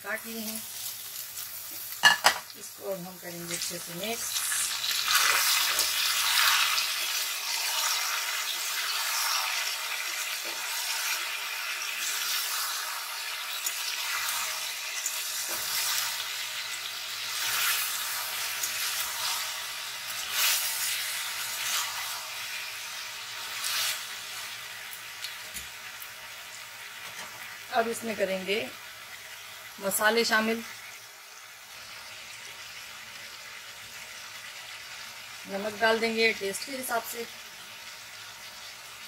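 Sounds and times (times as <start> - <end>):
vegetables sizzling in hot oil: 0.0 - 39.0.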